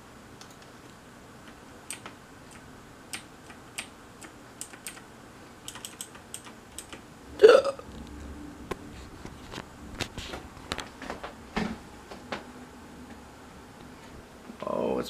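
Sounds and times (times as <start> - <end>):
keyboard typing clicks: 1.9 - 5.0, 5.6 - 7.0.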